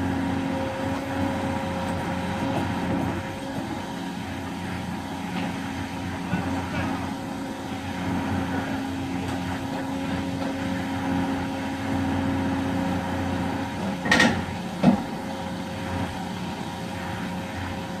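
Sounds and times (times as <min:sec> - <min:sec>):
excavator engine and hydraulics whine: 0:00.0 - 0:18.0.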